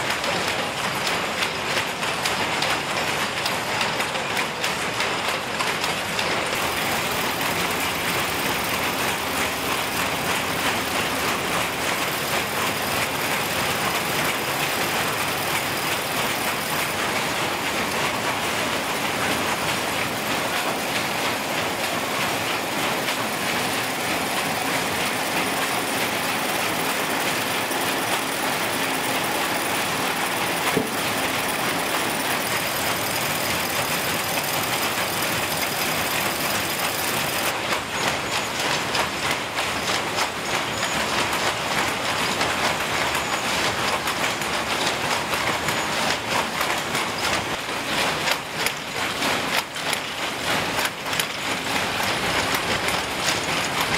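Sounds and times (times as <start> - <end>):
looms clattering: 0.2 - 37.6, 38.6 - 53.9.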